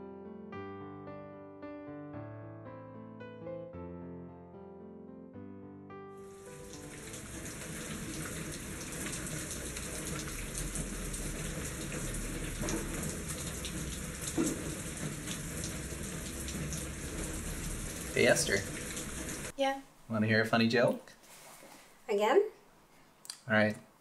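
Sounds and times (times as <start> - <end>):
steady rain falling: 6.3 - 19.6
single raindrops: 6.6 - 19.5.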